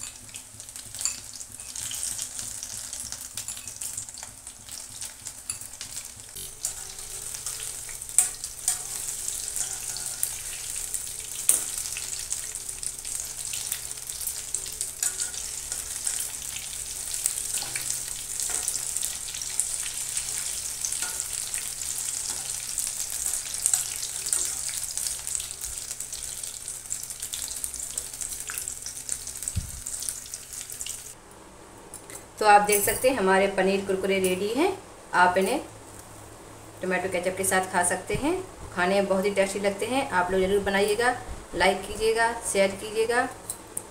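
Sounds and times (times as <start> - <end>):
deep-frying sizzle in oil: 0.0 - 31.2.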